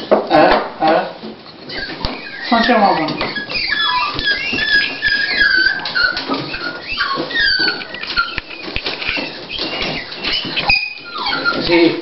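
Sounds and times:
high-pitched whimpering squeaks: 1.2 - 12.0.

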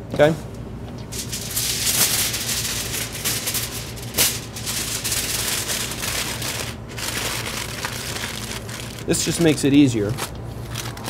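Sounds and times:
aluminium foil crinkling: 1.1 - 11.0.

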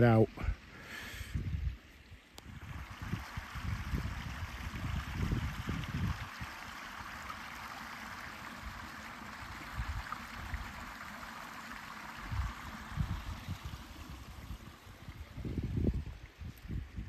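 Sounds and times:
stream running over stones: 0.0 - 17.0
wind buffeting microphone: 1.3 - 1.8, 2.5 - 6.6, 12.2 - 17.0.

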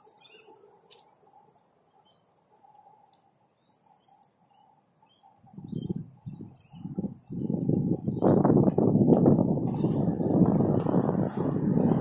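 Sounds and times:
bird chirps: 0.0 - 0.7, 1.9 - 2.3, 3.5 - 8.4
loud low rumbling: 9.7 - 12.0.

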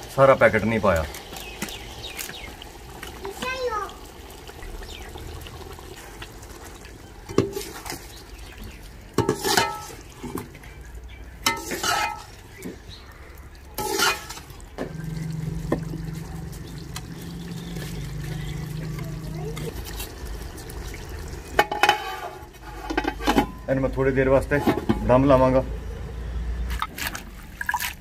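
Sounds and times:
metal spoon scraping a pot: 9.2 - 10.5, 11.4 - 12.4, 13.8 - 14.5, 21.6 - 23.7, 24.4 - 25.2.

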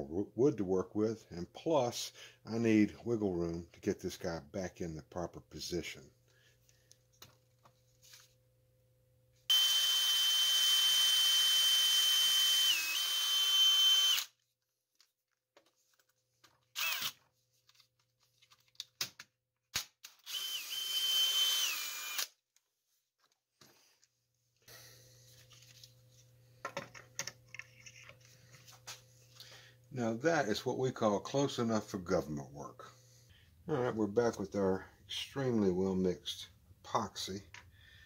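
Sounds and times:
cordless drill whining into wood: 9.5 - 14.4, 16.7 - 17.2, 20.2 - 22.4.

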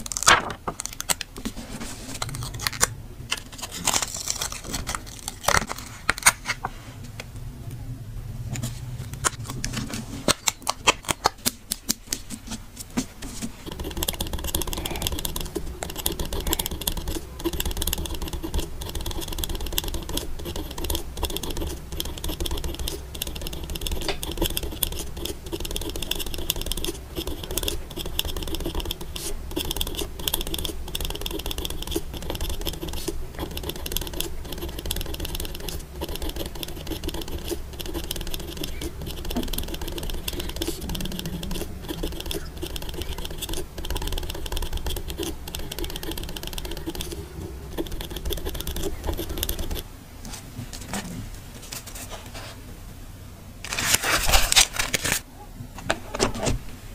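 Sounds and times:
pen scratching on paper: 13.2 - 49.9.

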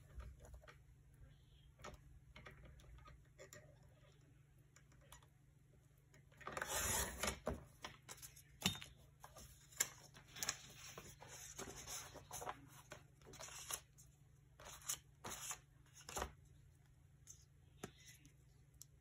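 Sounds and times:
paper rustling: 9.2 - 16.4.

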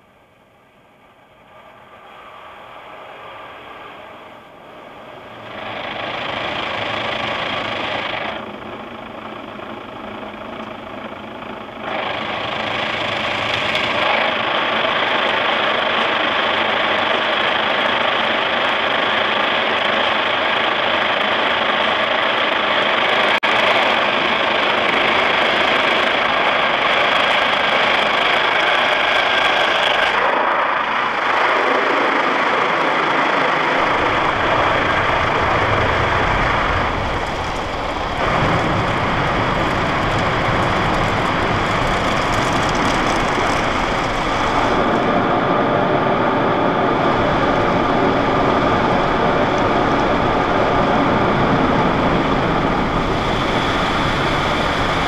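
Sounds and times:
car wash brushes and water scrubbing: 34.0 - 44.9.

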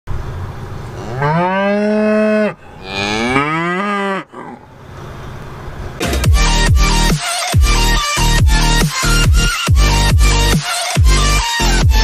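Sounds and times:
cow mooing: 0.8 - 5.0.

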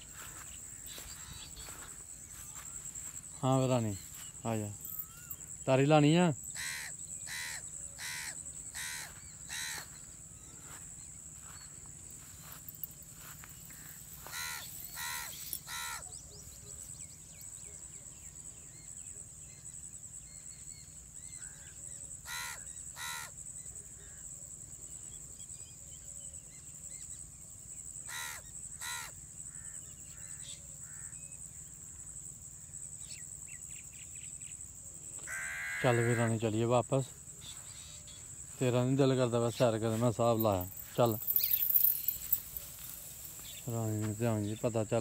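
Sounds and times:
small birds chirping: 0.0 - 17.9, 37.3 - 45.0
high-pitched insect buzz: 6.4 - 16.1, 35.2 - 36.6, 39.9 - 44.2
crows cawing: 6.5 - 10.1, 13.7 - 16.0, 22.2 - 23.3, 28.1 - 29.8, 35.2 - 36.4.

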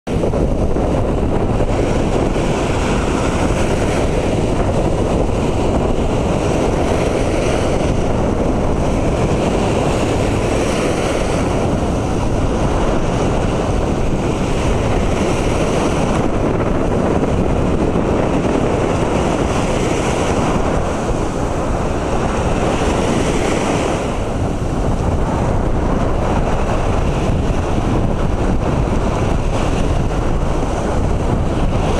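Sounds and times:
sea surf breaking: 0.1 - 31.9
wind rumbling on microphone: 0.1 - 31.9.

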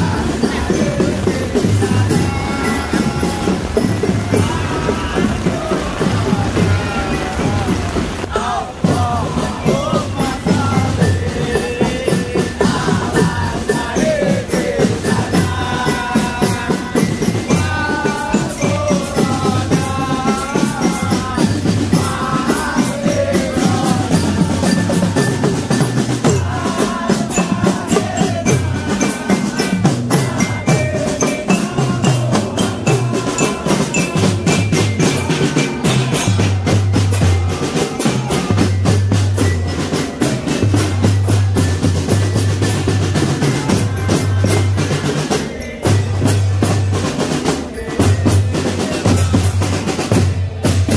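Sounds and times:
pitched melody: 0.0 - 50.7
snare and bass drums: 0.0 - 50.9.

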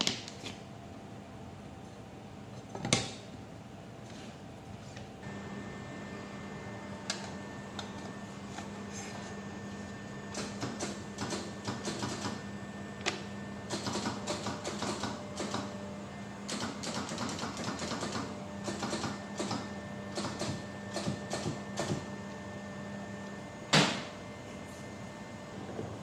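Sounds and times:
crimping machine humming: 5.2 - 24.0.

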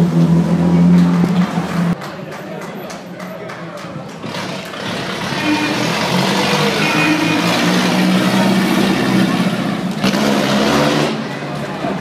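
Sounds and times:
spectators clapping: 0.9 - 4.9.

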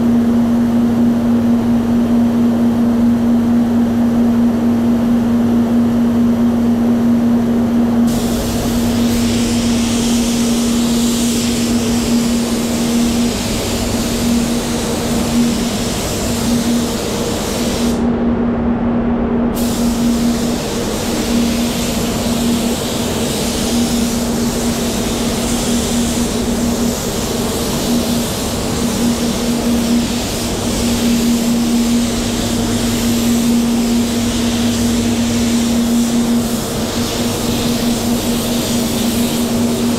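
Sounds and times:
extraction fans humming: 0.0 - 39.9
spray gun hissing: 8.1 - 18.0, 19.6 - 39.9.

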